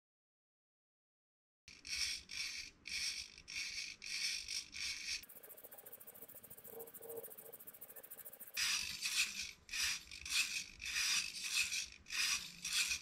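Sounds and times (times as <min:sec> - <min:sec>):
faint fast ticking: 0:05.0 - 0:08.6.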